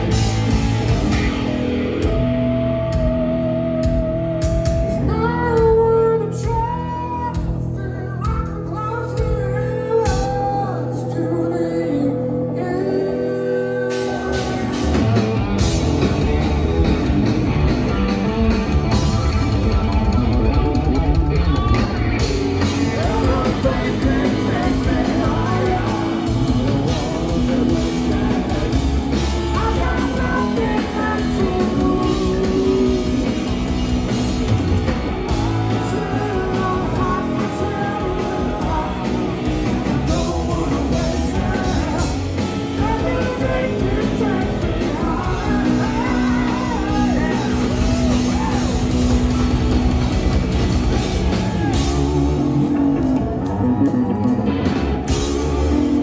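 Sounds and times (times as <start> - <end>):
live rock band playing: 0.0 - 56.0
man singing lead vocal: 3.8 - 15.6, 21.3 - 34.1, 35.2 - 49.5, 51.0 - 56.0.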